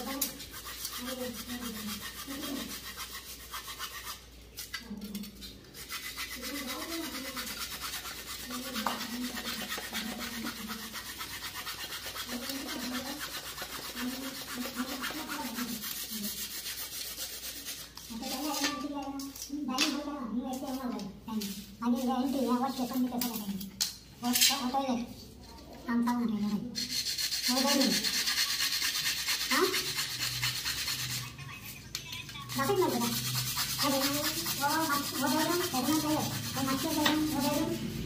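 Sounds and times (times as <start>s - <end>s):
hacksaw blade sawing wood: 32.7s - 37.6s.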